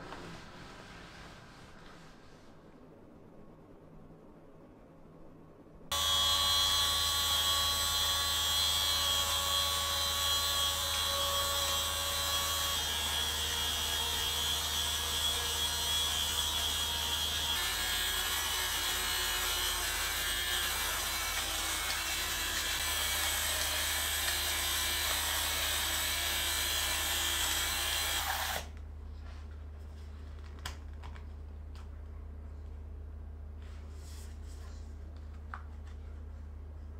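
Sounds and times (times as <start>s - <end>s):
electric fabric shaver running: 5.9s - 28.7s.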